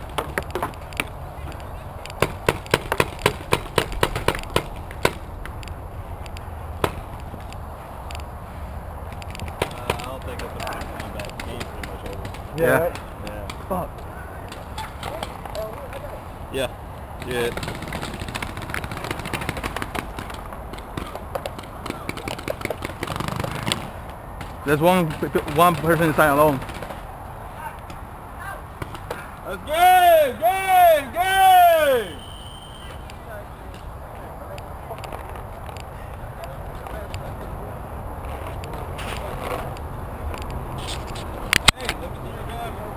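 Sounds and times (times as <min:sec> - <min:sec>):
paintball markers firing: 0:00.1 - 0:05.6, 0:09.2 - 0:13.6, 0:17.2 - 0:27.0.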